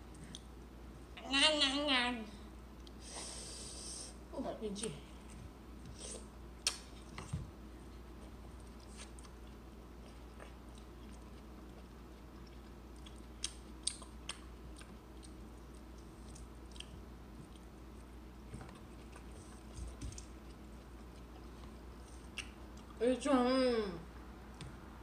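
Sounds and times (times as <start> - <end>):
quiet chewing: 0.0 - 0.6, 2.7 - 3.0, 5.1 - 23.0.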